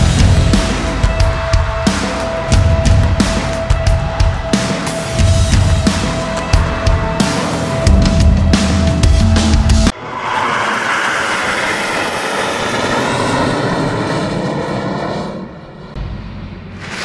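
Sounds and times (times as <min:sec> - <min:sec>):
heavy rock music: 0:00.0 - 0:10.0
jet fighters flying over: 0:09.9 - 0:17.0.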